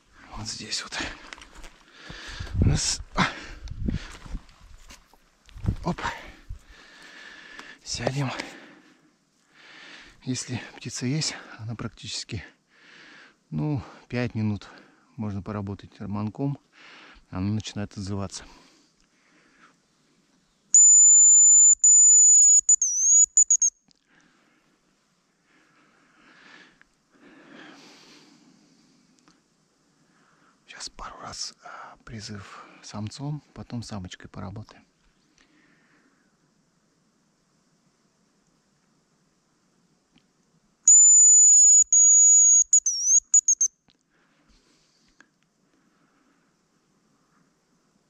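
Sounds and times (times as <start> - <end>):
high thin decoy whistle: 20.8 - 23.8, 40.9 - 43.7.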